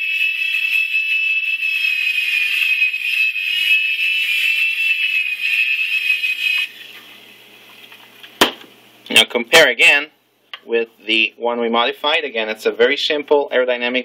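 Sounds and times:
toy helicopter motors whining: 0:00.0 - 0:07.0.

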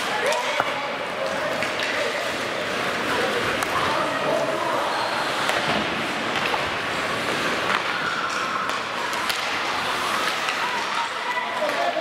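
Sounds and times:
hockey sticks and puck clacking: 0:00.0 - 0:03.9, 0:05.3 - 0:12.0.

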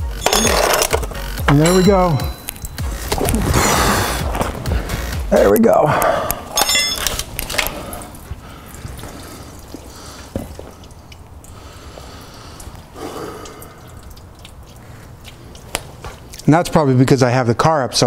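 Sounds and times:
fluid dripping and running: 0:07.1 - 0:18.0.

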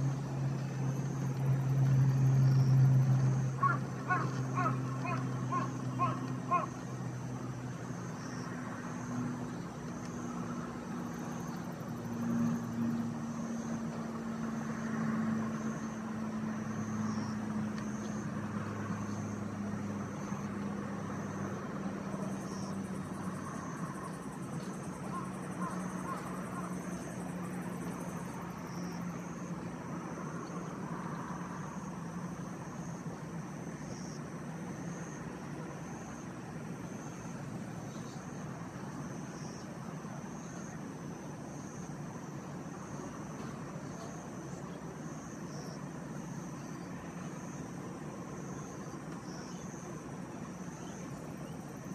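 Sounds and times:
high insect trill: 0:00.0 - 0:35.2
distant engine hum: 0:00.0 - 0:51.9
steady noise haze: 0:00.0 - 0:51.9.

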